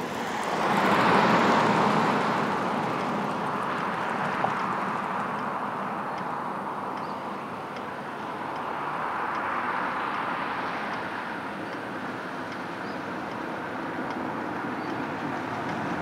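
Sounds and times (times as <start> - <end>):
faint high ticks: 3.0 - 5.5, 6.9 - 15.9.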